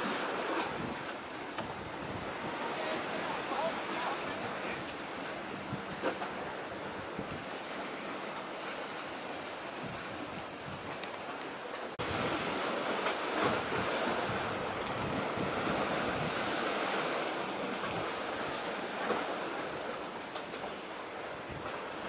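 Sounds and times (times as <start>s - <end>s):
wind rushing on microphone: 0.0s - 8.2s, 9.2s - 11.1s, 12.0s - 19.9s, 20.6s - 22.0s
sea washing: 0.0s - 22.0s.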